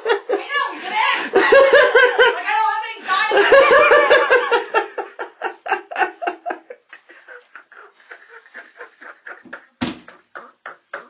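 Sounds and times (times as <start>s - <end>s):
person laughing: 3.5s - 11.0s
dull thump: 9.8s - 10.1s.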